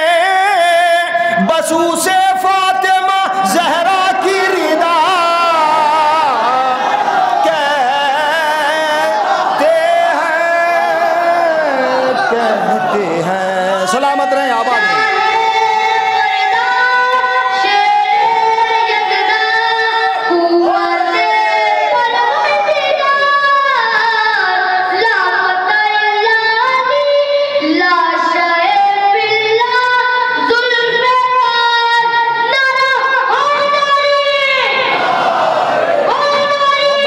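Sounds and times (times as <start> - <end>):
man singing through microphones: 0.0 - 18.9.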